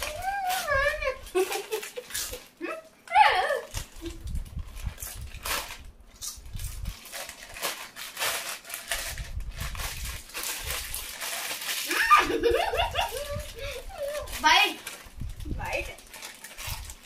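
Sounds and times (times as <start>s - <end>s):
foil snack packets crinkling: 0.0s - 2.6s, 3.7s - 17.0s
child's voice: 13.9s - 14.8s.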